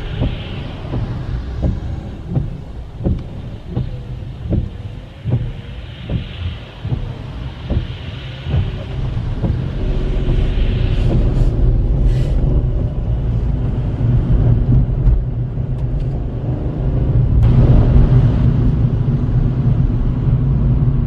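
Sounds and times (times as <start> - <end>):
tyres hissing on wet road: 0.0 - 14.7
car engine and tyre rumble: 0.0 - 21.0.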